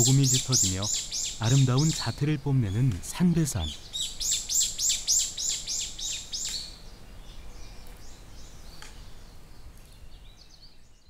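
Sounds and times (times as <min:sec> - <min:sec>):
bird singing high notes: 0:00.0 - 0:02.8
faint bird chirps: 0:00.0 - 0:11.0.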